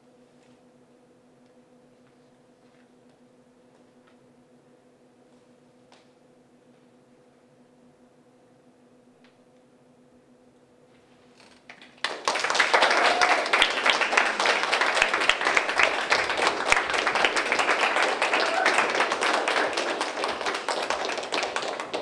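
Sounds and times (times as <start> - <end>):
audience applauding: 11.7 - 22.0.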